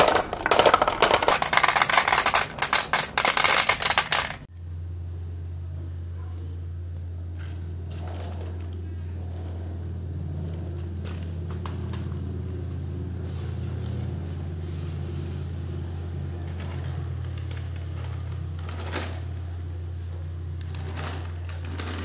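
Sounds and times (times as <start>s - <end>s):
toy car wheels scraping on tiles: 0.0s - 4.5s, 13.1s - 22.0s
toy truck rolling on tile floor: 0.0s - 4.5s, 7.3s - 22.0s.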